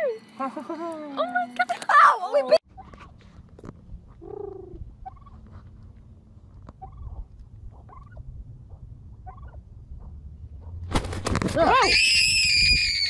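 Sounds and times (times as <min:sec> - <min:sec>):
steady low rumble: 0:02.7 - 0:11.2
turkey calling: 0:04.2 - 0:05.4, 0:06.7 - 0:08.2, 0:09.2 - 0:09.6
turkey clucking: 0:04.2 - 0:05.4, 0:06.7 - 0:10.7.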